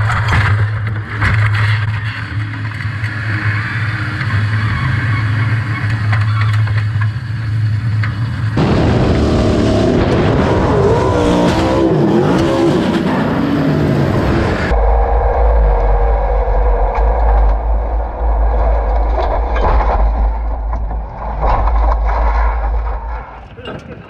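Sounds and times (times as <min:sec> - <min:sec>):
race car engine revving: 0:08.4 - 0:23.3.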